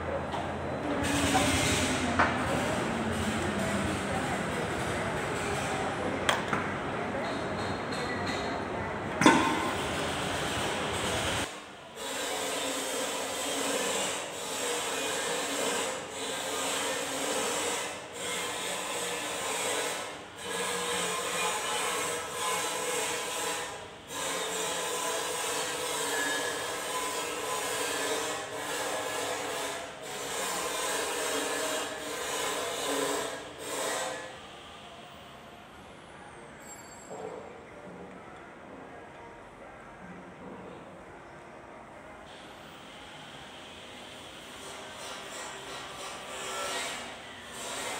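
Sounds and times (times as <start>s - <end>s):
hand tool rasping on metal: 12.0s - 34.3s.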